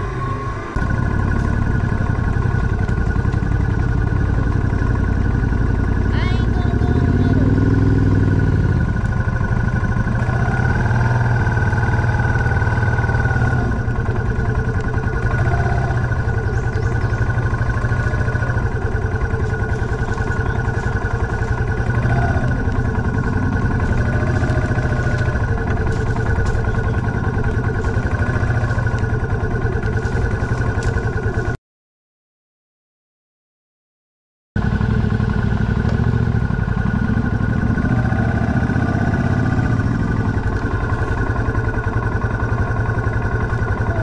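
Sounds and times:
motorcycle engine running: 0.0 - 31.6, 34.6 - 44.0.

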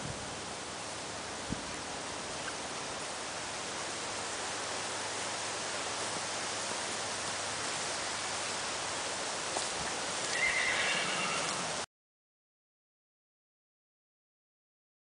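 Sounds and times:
steady outdoor hiss: 0.0 - 11.9
horse whinnying: 10.3 - 11.8.

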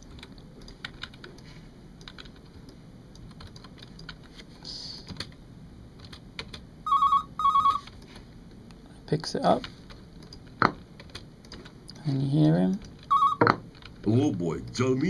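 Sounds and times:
keyboard and mouse clicks: 0.0 - 4.3, 9.9 - 12.1
telephone ringing: 6.9 - 7.9, 13.1 - 13.6.

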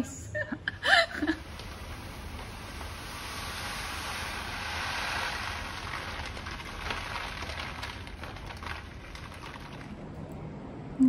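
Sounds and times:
rice grains pouring into wooden box: 1.6 - 9.9.

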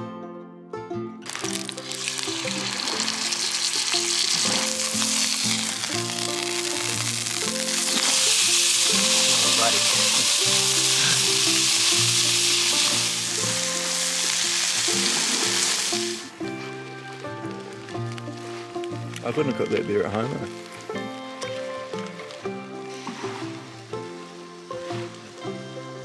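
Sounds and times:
background music: 0.0 - 26.0
steak sizzling in a skillet: 1.3 - 19.1.

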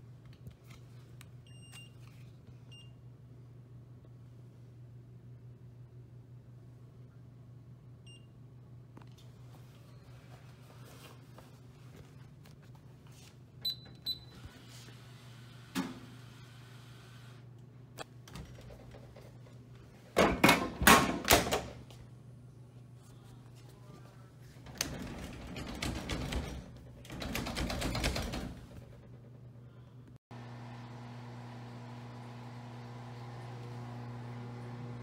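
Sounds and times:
vending machine rattling: 24.6 - 29.4.

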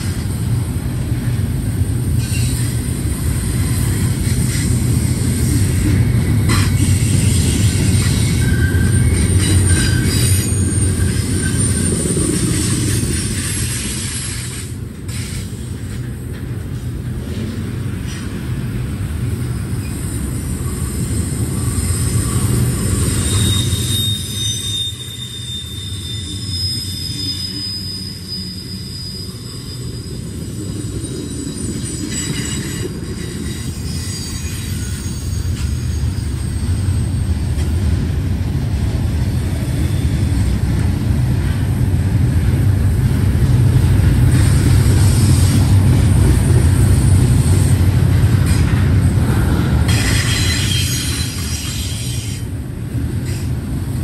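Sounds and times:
rumble of steel wheels on rail: 0.0 - 54.0
high-pitched wheel squeals: 6.5 - 14.7, 19.7 - 37.3, 49.9 - 52.5.

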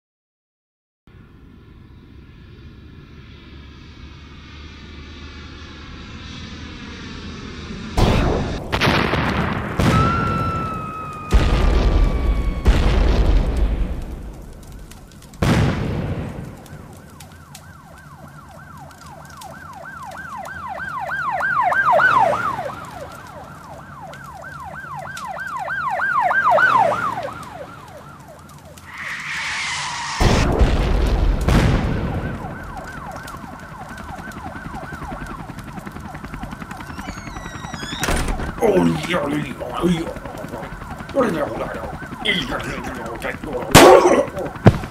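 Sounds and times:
boom: 8.0 - 14.2, 28.9 - 32.5, 43.7 - 44.9
wavering emergency siren: 8.0 - 44.9
rushing hiss: 28.9 - 30.5
steady high tone: 28.9 - 30.5.

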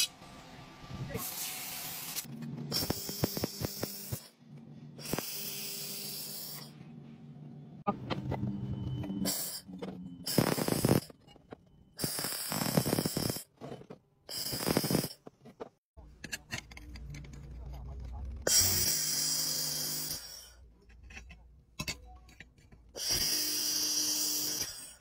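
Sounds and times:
laser welder hissing: 10.3 - 11.1, 14.3 - 15.2.

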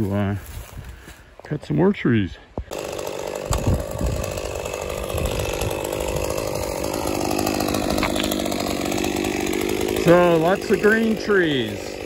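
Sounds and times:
chainsaw cutting limbs: 2.6 - 12.0.

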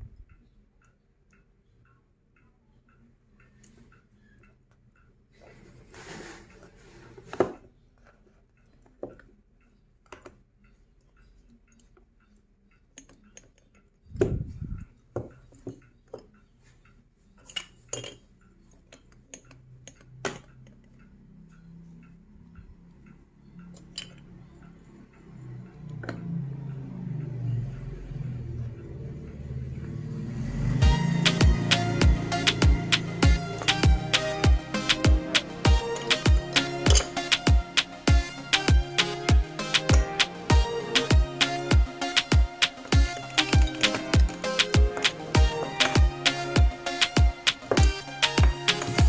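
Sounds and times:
low hum: 14.1 - 14.9.

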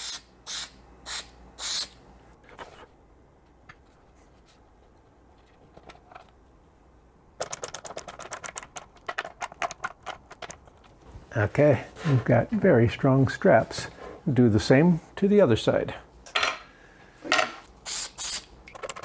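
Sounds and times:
aerosol spray can hissing: 0.0 - 2.0, 17.8 - 18.5.

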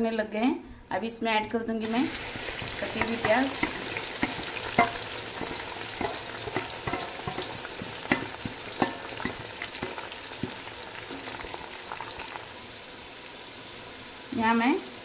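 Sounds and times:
onions sizzling in hot oil: 1.8 - 15.0
wooden spatula stirring in a pot: 2.0 - 12.4.

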